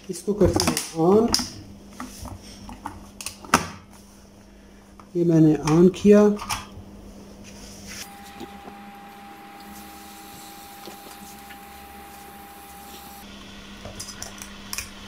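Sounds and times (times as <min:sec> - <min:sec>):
thin steady tone: 0:08.0 - 0:13.2
kettle heating hiss and hum: 0:08.0 - 0:15.0.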